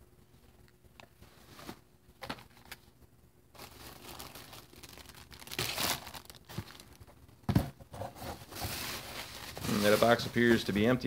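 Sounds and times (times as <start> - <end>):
bubble wrap crinkling: 3.5 - 7.2, 8.4 - 11.0.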